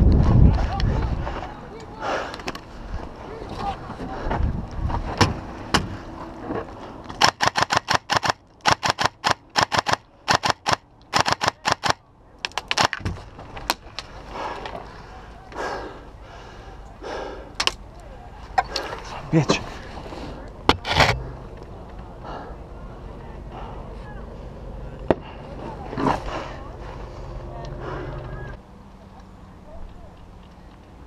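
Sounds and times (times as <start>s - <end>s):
airsoft rifle shots: 7.2s - 12.0s.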